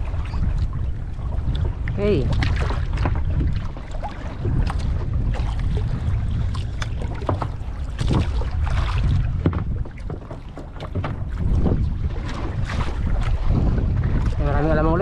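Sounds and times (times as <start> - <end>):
water splashing against hull: 0.0 - 15.0
wind buffeting microphone: 0.0 - 15.0
gear knocking against hull: 9.1 - 12.0.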